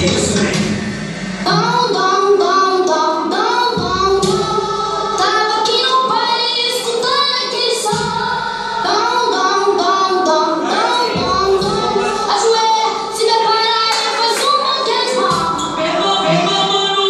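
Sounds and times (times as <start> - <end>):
deep bass: 0.0 - 2.4, 3.6 - 5.8, 11.2 - 13.3
high voices singing over music: 0.0 - 17.0.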